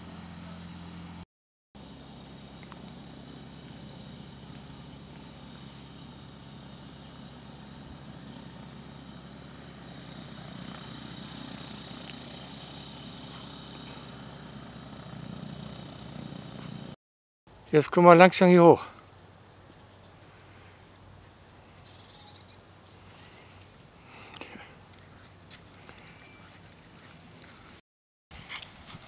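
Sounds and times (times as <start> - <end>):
distant engine humming: 0.0 - 1.2, 1.8 - 17.0.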